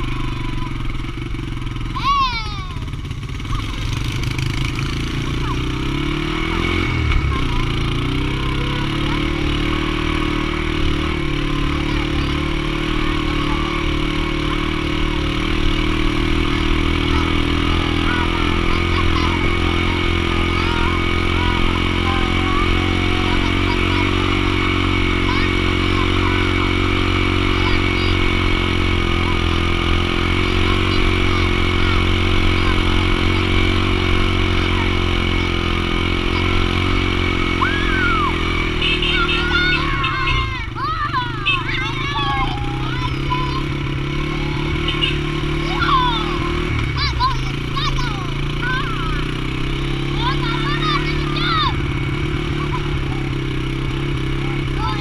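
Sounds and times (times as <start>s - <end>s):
small engine running: 0.0s - 55.0s
children calling out: 1.8s - 4.0s, 17.0s - 55.0s.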